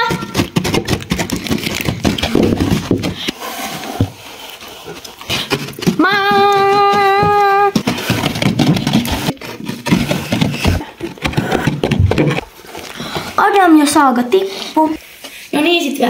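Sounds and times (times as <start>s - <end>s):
person calling out: 6.0s - 7.8s.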